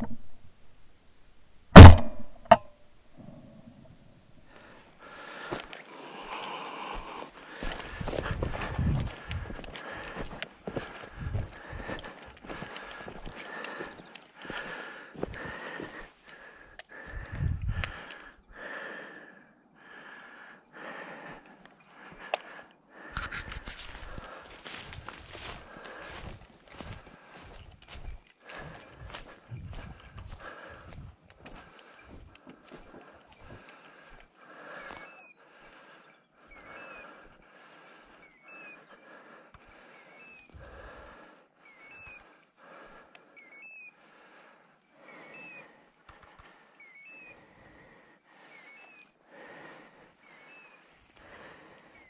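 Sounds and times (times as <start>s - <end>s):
footsteps through dry undergrowth: 4.5s - 18.1s, 22.0s - 52.0s
heavy breathing: 4.5s - 52.0s
dull footfalls: 7.0s - 16.0s, 23.9s - 31.6s.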